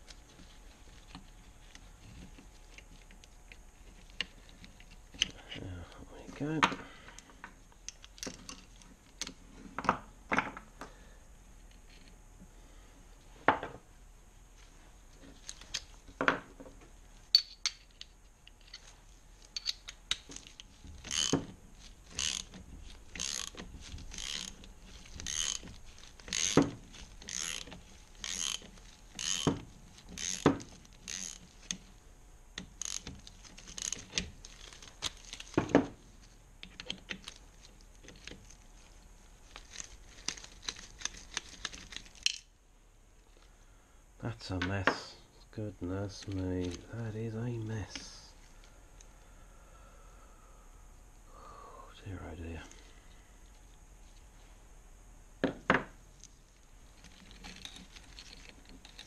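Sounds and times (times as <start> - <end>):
ratchet wrench clicking: 21.0 - 21.4, 22.1 - 22.5, 23.2 - 24.6, 25.2 - 25.7, 26.3 - 29.5, 30.2 - 31.4, 32.7 - 34.1.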